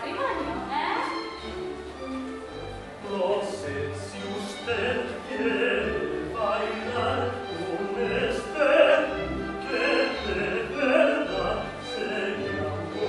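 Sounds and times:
man singing opera: 3.0 - 13.0.

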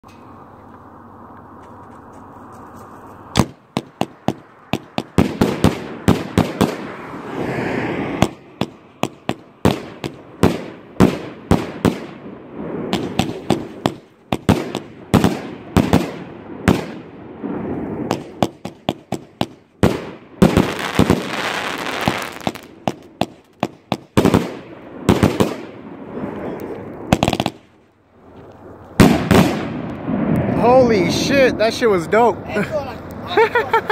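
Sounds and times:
fireworks bangs and bursts: 3.4 - 7.2, 8.2 - 27.7, 29.0 - 30.9
fireworks hissing: 20.5 - 24.1.

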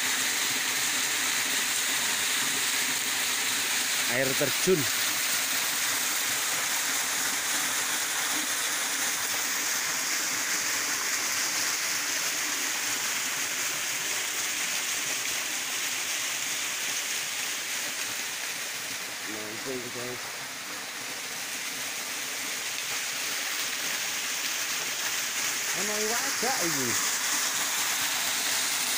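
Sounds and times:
waterfall rushing: 2.8 - 5.2, 22.6 - 28.9.

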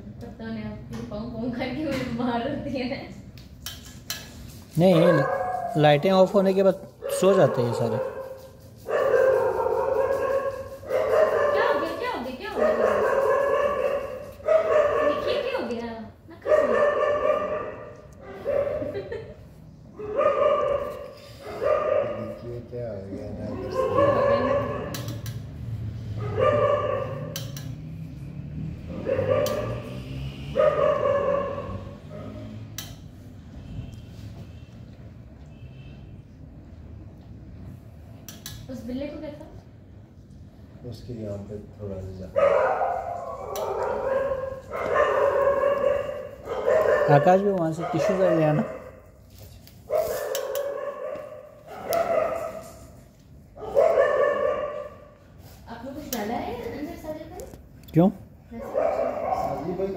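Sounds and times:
dog crying out: 5.0 - 5.9, 23.4 - 25.0, 42.4 - 48.6
dog crying: 23.3 - 24.9
sharp clicks: 27.3 - 27.8.

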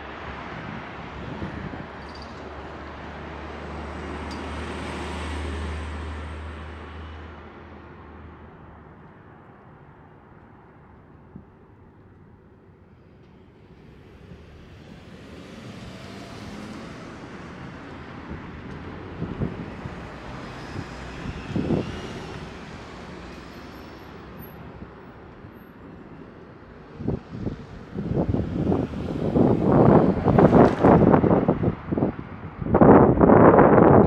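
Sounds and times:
wind bumps on microphone: 18.2 - 22.8, 26.9 - 34.0.

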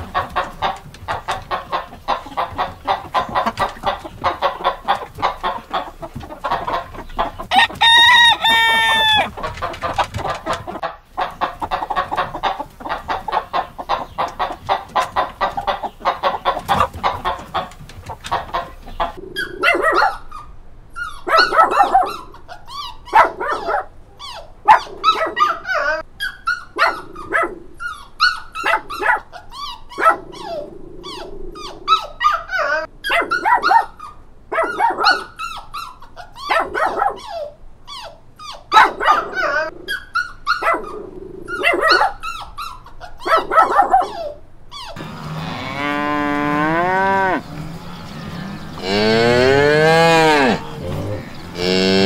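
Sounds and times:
chickens clucking: 0.0 - 52.0
puppies barking and yipping: 0.0 - 52.0
rooster crowing: 7.5 - 9.4, 45.0 - 52.0.

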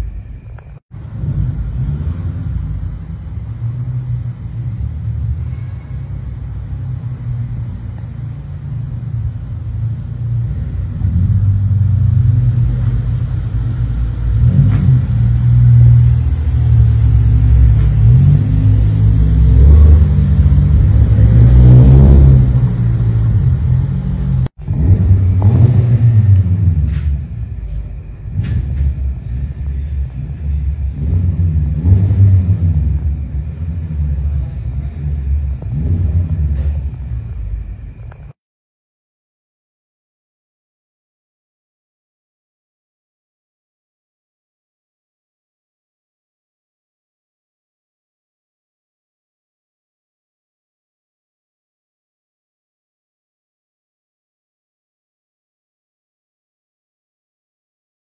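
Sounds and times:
car engines rumbling: 0.0 - 38.4.

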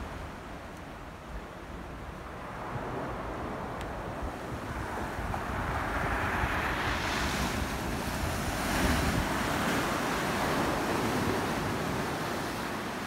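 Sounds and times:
wind rumble on microphone: 0.0 - 13.0
waves washing over rocks: 4.8 - 13.0.

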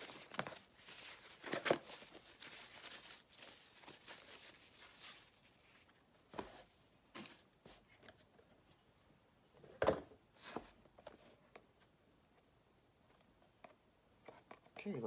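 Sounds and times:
packing material rustling: 0.0 - 5.9.

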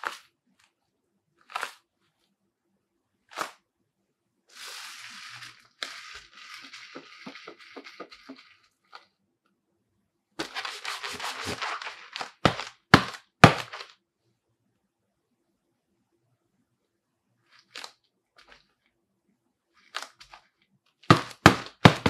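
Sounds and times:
gloves rubbing and brushing: 0.0 - 0.4, 4.5 - 9.0, 10.4 - 13.9, 21.1 - 22.0
palm slapping a ball: 12.4 - 13.8.

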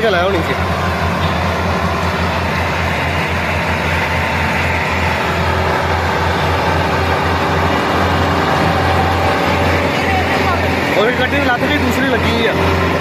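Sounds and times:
tractor diesel engines under load: 0.0 - 13.0.

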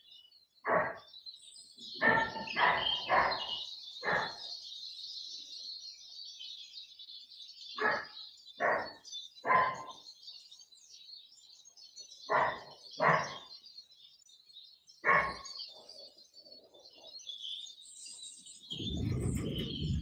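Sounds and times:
small birds chirping and twittering: 0.0 - 20.0
dog barking: 0.7 - 1.1, 2.0 - 4.5, 7.8 - 10.0, 12.3 - 13.5, 15.0 - 15.6
low rumbling noise: 18.7 - 20.0.

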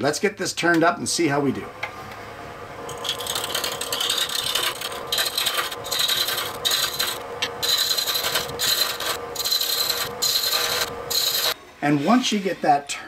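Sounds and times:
lathe humming: 2.6 - 12.5
chisel scraping spinning wood: 2.9 - 11.6.

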